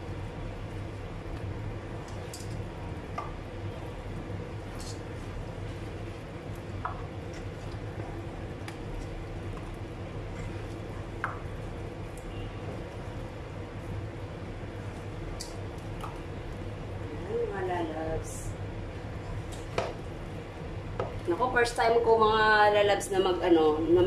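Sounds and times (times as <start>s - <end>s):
steady low hum: 0.0s - 24.0s
hands mixing food wet squelches: 4.6s - 13.9s.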